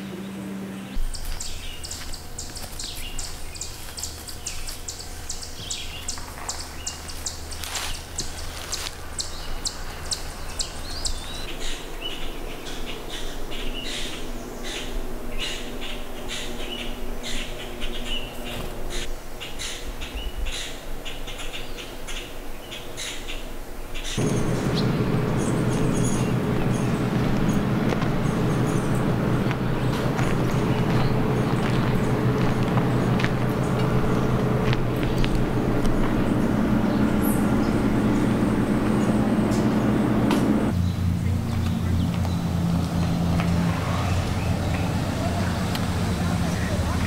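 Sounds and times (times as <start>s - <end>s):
songbirds chirping: 0.0s - 47.0s
low steady hum: 24.2s - 47.0s
rushing noise: 24.2s - 47.0s.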